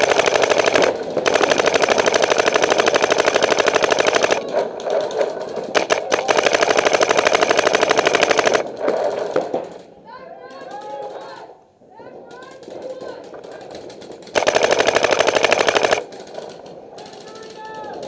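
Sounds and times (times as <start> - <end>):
paintball marker firing: 13.0 - 17.4.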